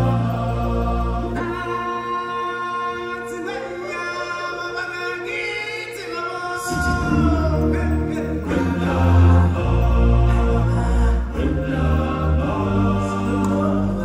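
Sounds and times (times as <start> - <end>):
choir singing: 0.0 - 14.0
low musical accompaniment: 0.0 - 14.0.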